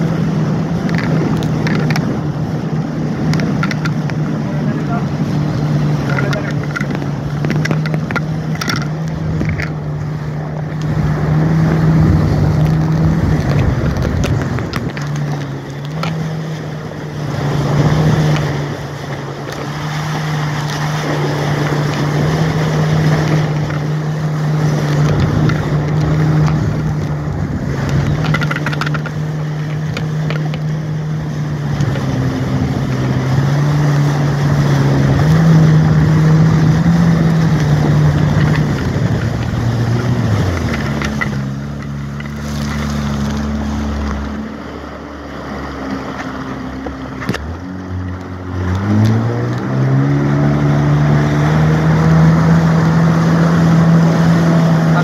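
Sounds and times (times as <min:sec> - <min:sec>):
jet ski engine drone: 0:00.0 - 0:55.0
rushing wind: 0:00.0 - 0:55.0.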